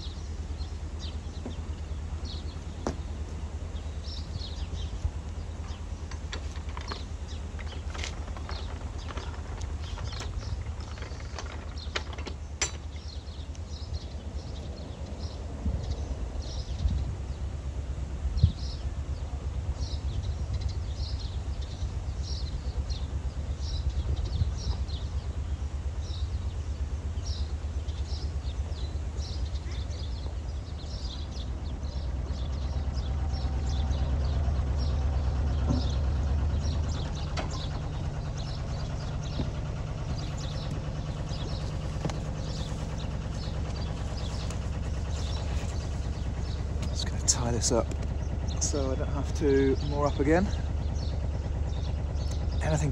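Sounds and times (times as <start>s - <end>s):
diesel boat engine throbbing: 0.0s - 52.9s
small bird chirping: 26.0s - 52.9s.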